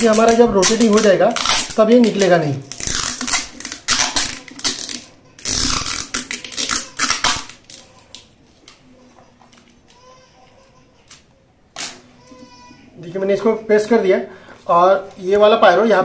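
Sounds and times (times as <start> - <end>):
adhesive tape tearing off roll: 0.0 - 8.8.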